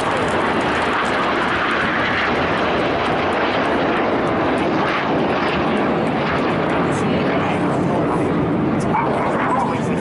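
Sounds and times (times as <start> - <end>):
jets flying past: 0.0 - 10.0.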